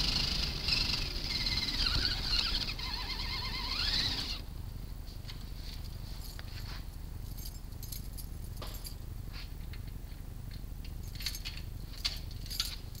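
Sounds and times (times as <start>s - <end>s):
small scuffs: 5.0s - 7.4s, 8.6s - 9.7s.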